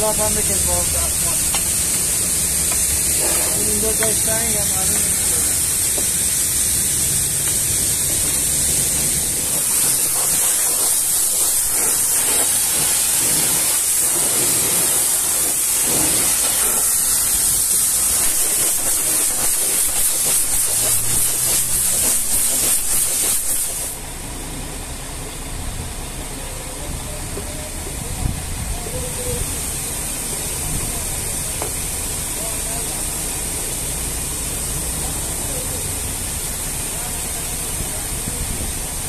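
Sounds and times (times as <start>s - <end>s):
pressure washer jet hissing: 0.0s - 24.1s, 29.1s - 39.0s
bristle brush scrubbing: 3.1s - 5.2s, 9.6s - 14.5s.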